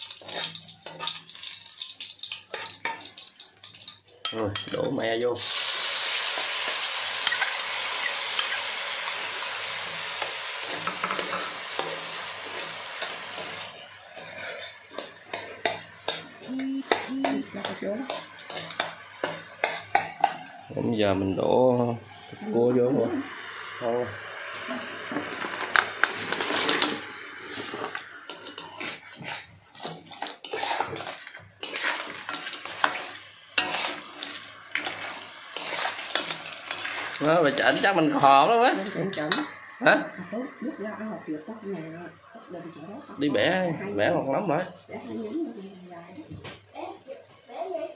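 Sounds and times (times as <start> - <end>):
crab shells clattering in a wok: 0.0 - 4.8, 25.2 - 37.9
metal spatula scraping pan: 0.0 - 5.0, 6.3 - 23.0, 24.6 - 40.2
liquid sizzling in hot oil: 0.0 - 47.9.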